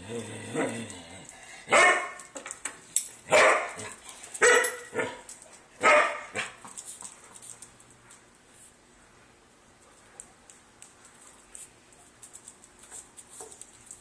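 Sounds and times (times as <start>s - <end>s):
dog barking: 1.7s - 2.2s, 3.3s - 5.2s, 5.8s - 6.6s.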